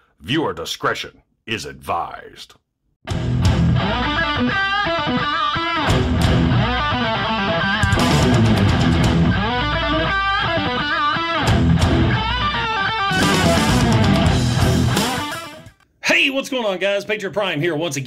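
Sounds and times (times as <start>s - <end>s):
rock music with electric guitar: 3.1s - 15.8s.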